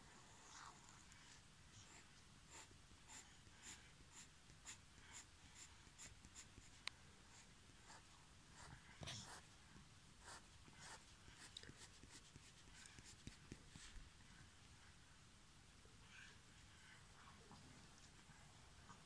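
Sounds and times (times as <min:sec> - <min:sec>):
pencil scratching on paper: 0:01.8 - 0:09.5, 0:10.2 - 0:14.0.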